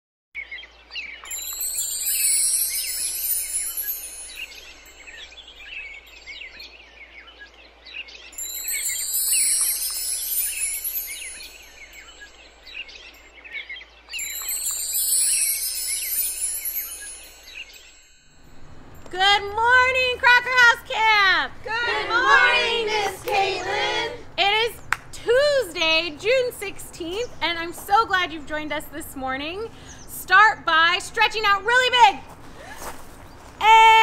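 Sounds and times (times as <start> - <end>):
bird-like chirps: 0.4 - 18.3
shimmering chime sweeps: 1.2 - 6.8, 8.4 - 13.4, 14.1 - 19.1.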